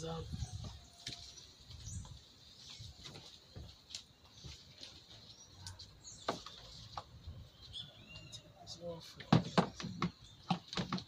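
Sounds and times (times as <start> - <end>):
plastic duct clicking and knocking: 9.3 - 11.0.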